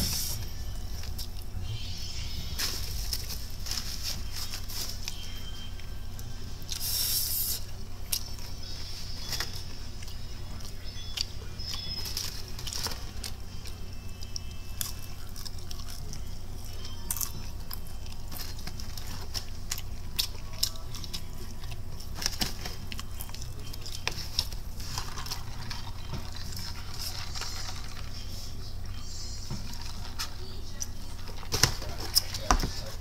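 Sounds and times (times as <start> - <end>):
steady low hum: 0.0 - 33.0
person chewing crunchy fried chicken: 9.9 - 29.0.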